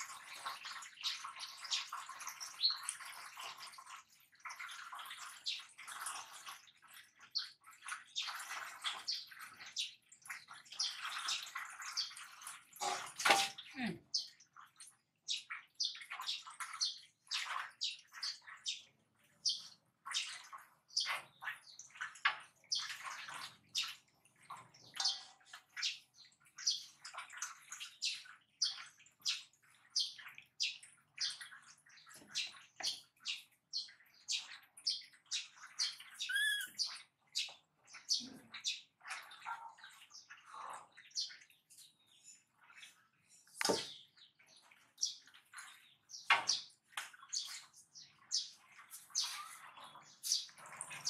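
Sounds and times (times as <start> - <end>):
water splashing in metal basins: 0.0 - 51.0.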